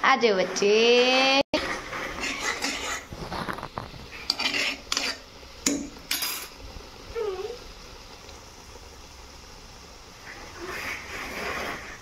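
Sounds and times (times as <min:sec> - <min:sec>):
steel spoon scraping a saucepan: 0:01.6 - 0:03.2, 0:04.1 - 0:05.2, 0:10.6 - 0:12.0.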